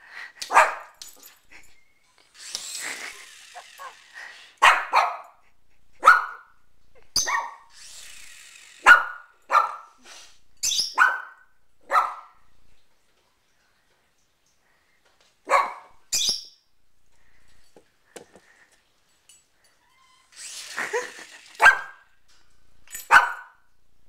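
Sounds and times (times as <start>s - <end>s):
dog barking: 0.5s - 1.0s, 4.6s - 5.4s, 6.0s - 6.5s, 7.2s - 7.7s, 8.8s - 10.0s, 10.9s - 12.4s, 15.5s - 16.0s, 21.6s - 22.0s, 23.1s - 23.6s
toy helicopter rotor whir: 1.4s - 4.6s, 7.1s - 9.3s, 19.8s - 22.1s.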